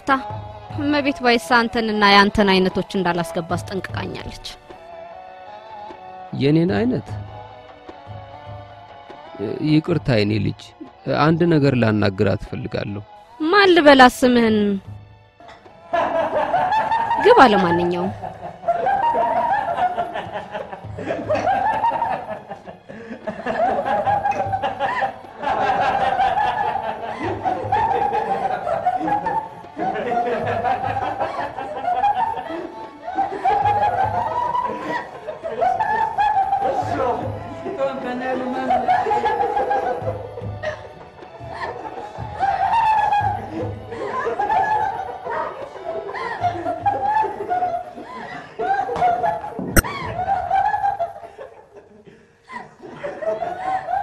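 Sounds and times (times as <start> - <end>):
background music: 0.0 - 54.0
people laughing and giggling: 15.4 - 54.0.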